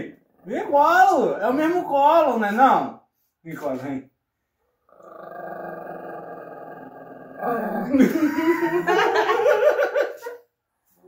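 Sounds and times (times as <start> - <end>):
small dog growling: 4.8 - 8.7
woman laughing: 7.9 - 10.4.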